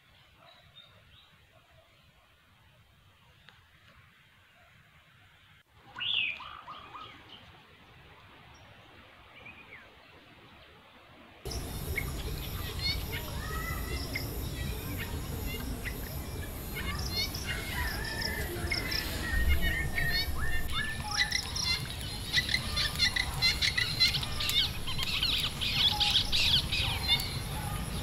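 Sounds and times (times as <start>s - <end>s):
high insect drone: 11.5s - 20.3s
wild birds calling: 11.5s - 28.0s.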